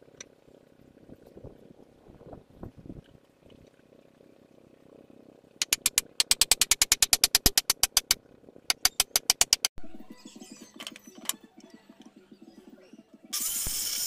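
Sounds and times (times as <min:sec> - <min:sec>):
low buzzy rhythmic hum: 0:00.0 - 0:14.0
ratchet tool clicking: 0:05.6 - 0:09.7.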